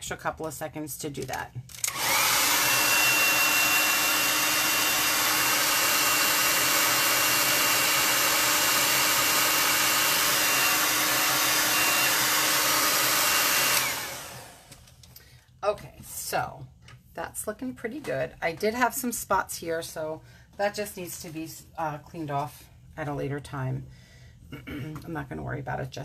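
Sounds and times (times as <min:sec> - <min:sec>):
hair dryer running: 0:01.7 - 0:15.1.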